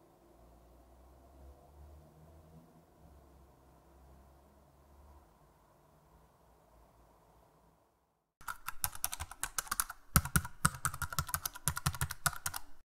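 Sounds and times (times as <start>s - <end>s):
typewriter keys clattering: 8.4s - 12.8s.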